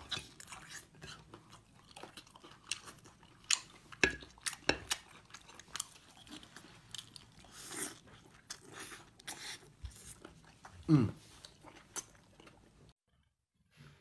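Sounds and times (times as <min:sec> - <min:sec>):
person chewing bread: 0:00.0 - 0:13.0.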